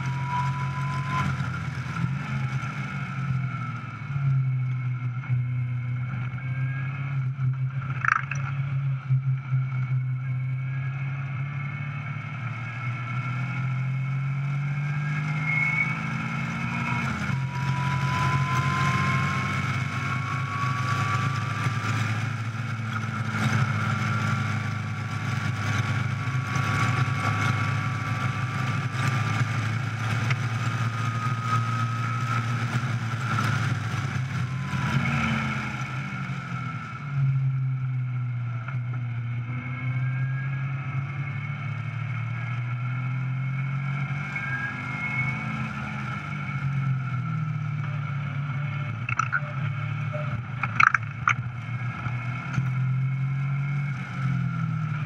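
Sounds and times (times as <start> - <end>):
wind and road noise: 0.0 - 55.0
car engine pulling hard: 12.0 - 37.9, 40.2 - 55.0.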